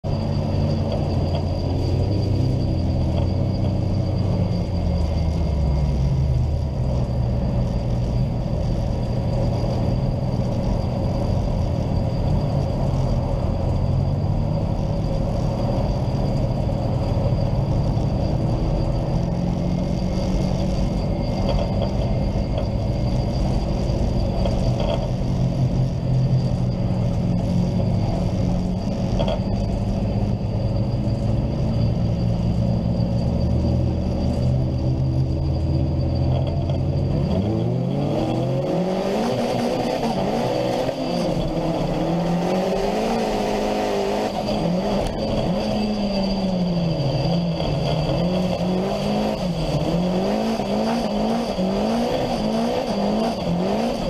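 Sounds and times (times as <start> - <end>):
race car engine revving: 16.5 - 54.0.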